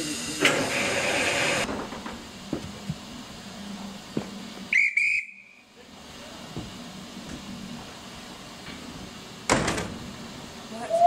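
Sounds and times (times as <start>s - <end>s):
steam hissing: 0.0s - 1.7s
train whistle blast: 4.7s - 5.7s.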